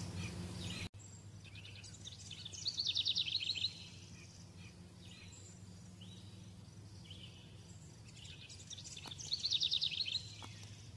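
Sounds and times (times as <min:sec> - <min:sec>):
bird chirping: 0:00.0 - 0:10.9
steady low hum: 0:00.0 - 0:10.9.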